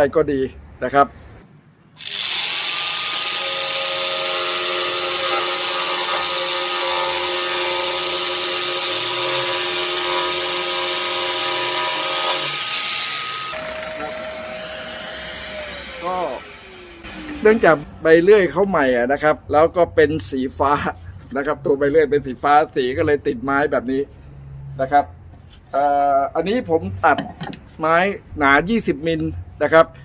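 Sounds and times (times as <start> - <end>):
jigsaw sawing wood: 2.0 - 17.8
dust extractor: 13.5 - 17.8.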